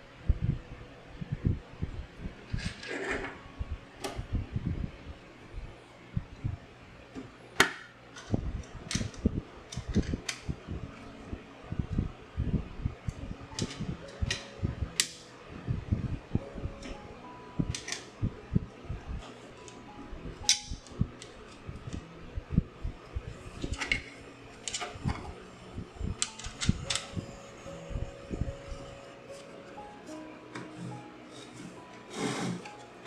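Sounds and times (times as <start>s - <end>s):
low steady hum: 0.0s - 33.0s.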